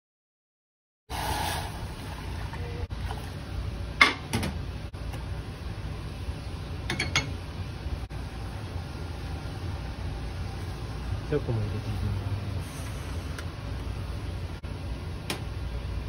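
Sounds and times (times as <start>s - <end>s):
water pouring into saucepan: 1.1s - 3.3s
steady low hum: 1.8s - 16.0s.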